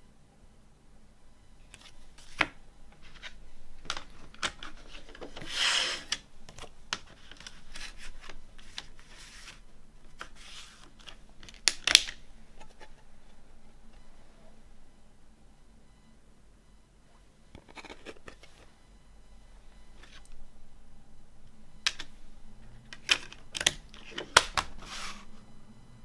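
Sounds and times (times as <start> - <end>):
paper rubbing and sliding: 4.8 - 6.2, 7.1 - 9.6, 10.2 - 11.0, 24.7 - 25.3.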